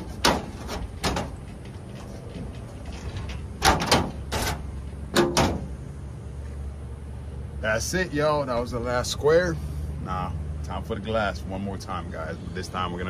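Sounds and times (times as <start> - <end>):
metal panel knocking and rattling: 0.0 - 1.7, 2.4 - 5.7.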